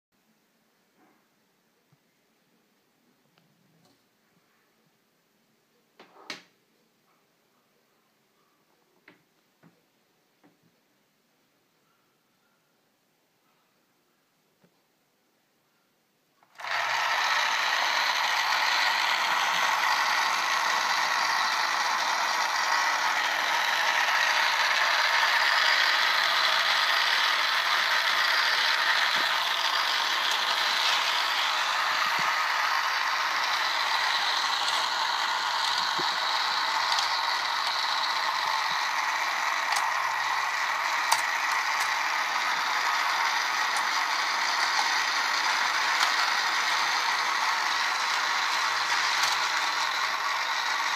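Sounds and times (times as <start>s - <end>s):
toy motor whirring and clattering: 16.4s - 50.9s.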